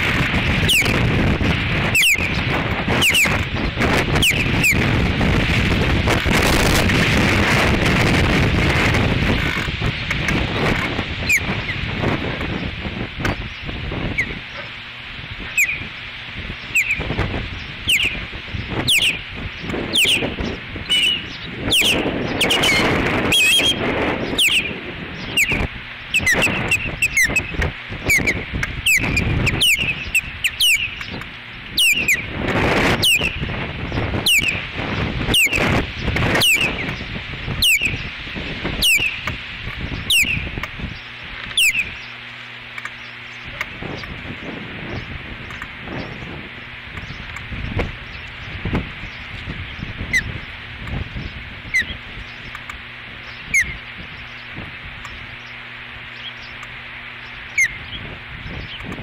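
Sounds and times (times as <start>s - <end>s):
wind buffeting microphone: 0.0s - 59.0s
osprey alert whistles: 37.6s - 38.1s.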